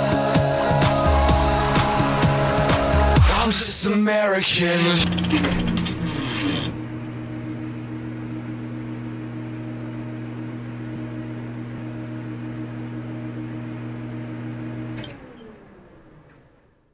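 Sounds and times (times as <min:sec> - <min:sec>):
low synthesizer chord drone: 0:00.0 - 0:05.9.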